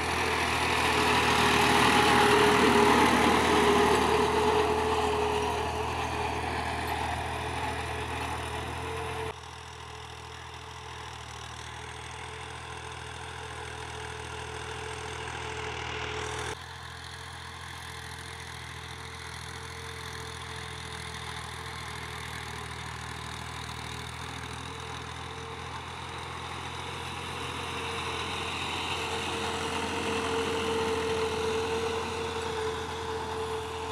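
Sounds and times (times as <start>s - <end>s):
tractor diesel engine running: 0.0s - 33.9s.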